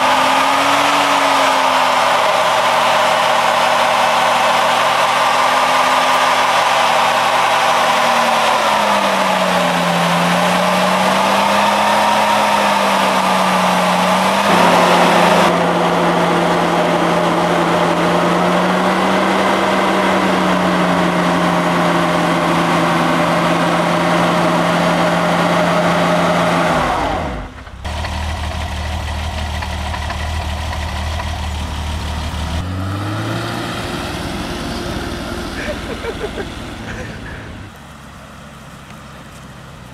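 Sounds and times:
car engine revving: 0.0 - 39.9.

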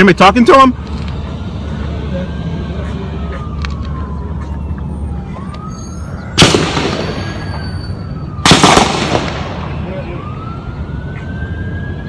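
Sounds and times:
distant siren wailing: 0.4 - 12.0
gunshot with echo: 6.4 - 7.4, 8.4 - 9.7.

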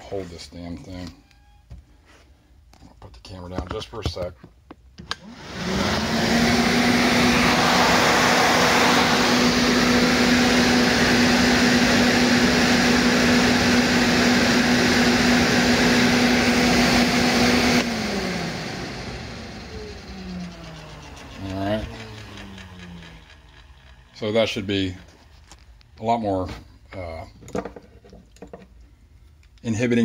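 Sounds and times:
electric fan rushing air and humming: 5.1 - 27.5.

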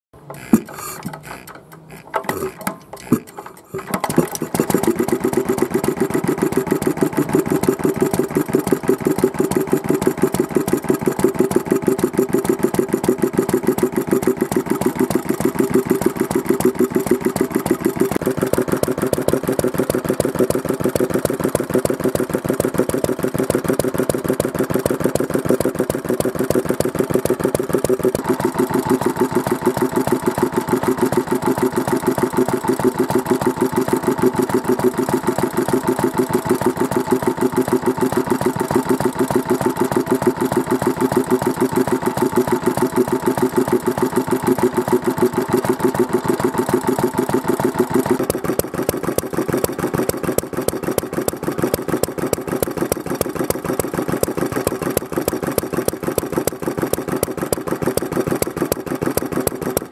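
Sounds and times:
flywheel knocks: 0.2 - 5.7
stationary engine running: 0.2 - 59.9.

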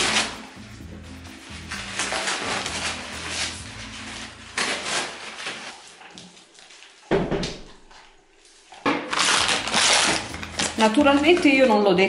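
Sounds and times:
paper crumpling: 1.5 - 7.1, 8.4 - 11.9
paper rustling and crinkling: 1.6 - 7.1, 7.8 - 11.9.

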